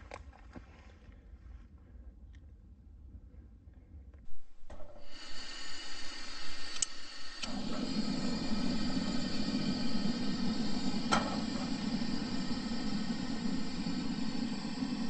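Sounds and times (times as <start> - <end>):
gas burner rushing: 4.3 - 15.0
gas hissing: 4.3 - 15.0
igniter clicks: 4.3 - 15.0.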